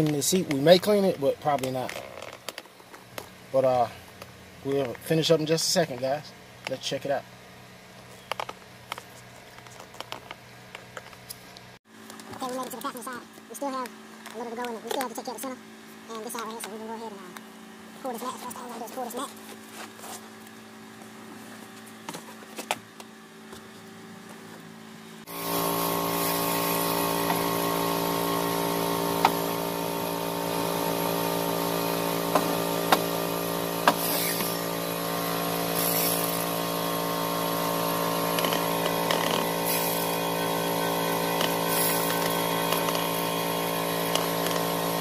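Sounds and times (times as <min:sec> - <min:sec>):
power tool motor running: 0:25.2 - 0:45.0.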